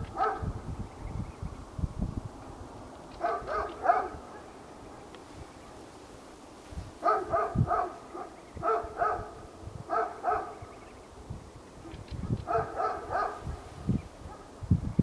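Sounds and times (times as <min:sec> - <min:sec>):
dog barking: 0:00.2 - 0:00.5, 0:03.2 - 0:04.5, 0:07.0 - 0:10.6, 0:12.2 - 0:14.6.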